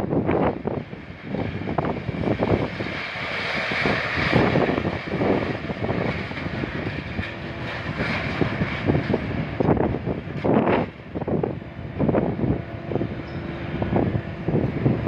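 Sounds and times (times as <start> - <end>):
machinery running: 0.0 - 15.0.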